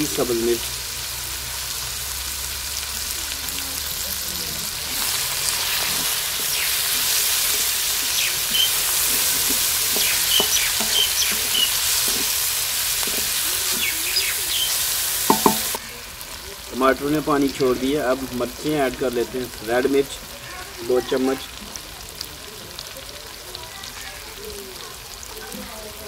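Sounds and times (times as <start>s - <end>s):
vegetables sizzling in hot oil: 0.0s - 26.0s
wooden spatula scraping: 4.1s - 15.8s
spatula knocking against pan: 8.4s - 12.3s, 15.3s - 15.8s.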